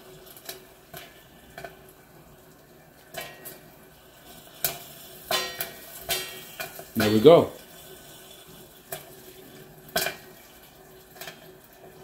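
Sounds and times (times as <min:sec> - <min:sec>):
popcorn kernels popping: 0:04.6 - 0:07.3.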